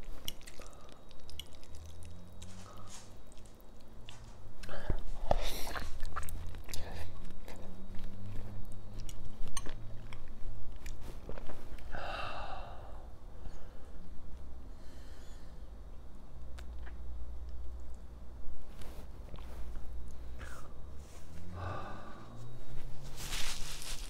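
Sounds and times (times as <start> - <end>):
wet mouth clicks: 0.0 - 3.4, 16.5 - 17.0
chewing noodles: 0.0 - 11.9
breathy huff: 21.5 - 22.5.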